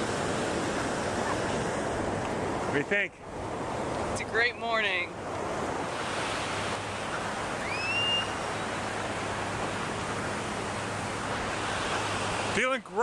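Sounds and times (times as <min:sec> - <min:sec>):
ocean surf on sandy beach: 0:00.0 - 0:13.0
short rising whistle-like call: 0:07.6 - 0:08.4.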